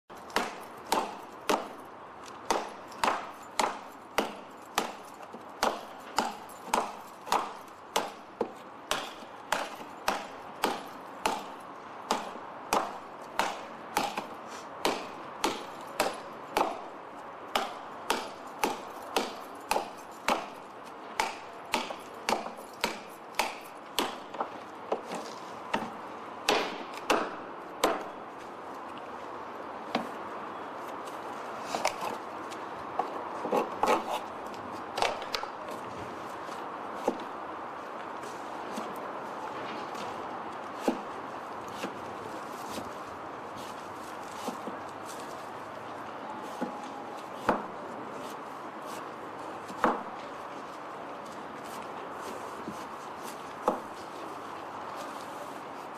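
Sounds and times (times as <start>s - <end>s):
knife chopping bamboo: 0.3s - 1.7s, 2.4s - 5.0s, 5.6s - 11.5s, 12.1s - 16.8s, 17.5s - 20.5s, 21.2s - 25.1s, 40.8s - 41.1s, 47.4s - 47.8s.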